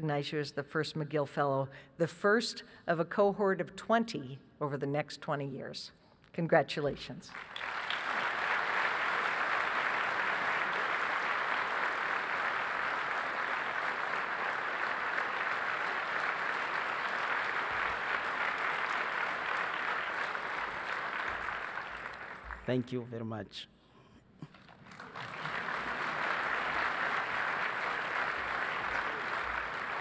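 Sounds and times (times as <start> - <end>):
audience applauding: 7.3 - 22.9, 24.5 - 30.0.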